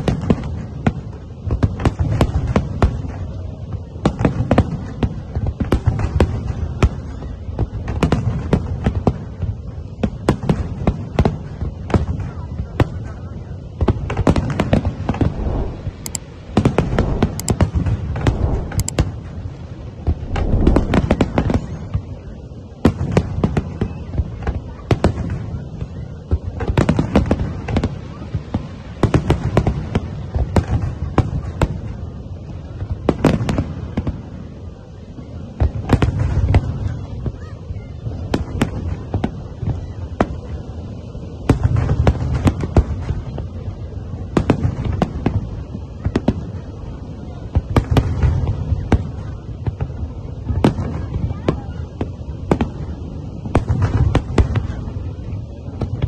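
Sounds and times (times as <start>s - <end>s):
fireworks bursting: 15.0s - 21.9s
low rumble: 15.1s - 21.5s.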